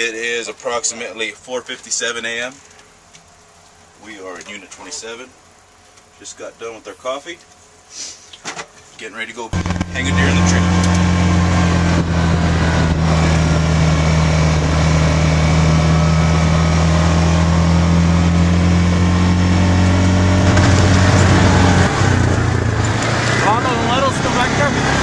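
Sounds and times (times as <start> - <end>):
vehicle engine drone: 9.5 - 25.0
tyres rattling on dirt road: 20.3 - 25.0.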